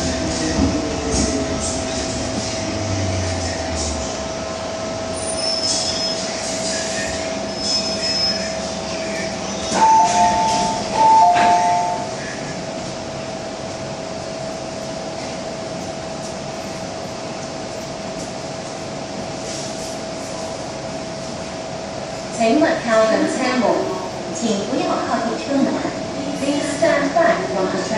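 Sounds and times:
steady train tone: 0:00.0 - 0:27.9
train doors knocking: 0:09.7 - 0:12.1
two-tone door chime: 0:09.8 - 0:12.0.

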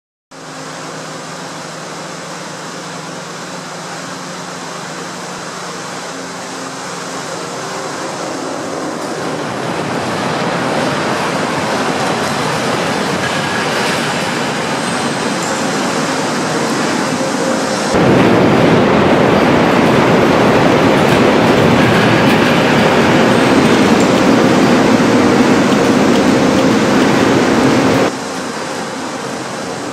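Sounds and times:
machinery hum with rushing: 0:00.3 - 0:29.9
loud rumbling and rattling: 0:05.4 - 0:28.3.

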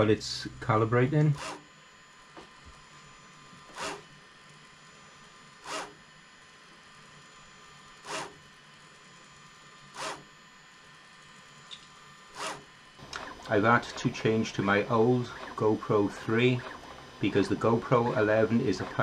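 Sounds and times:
faint steady hum: 0:00.0 - 0:19.0
stepper motor zipping rasps: 0:01.3 - 0:01.7, 0:03.6 - 0:04.1, 0:05.6 - 0:06.0, 0:08.0 - 0:08.4, 0:09.9 - 0:10.3, 0:12.3 - 0:19.0.

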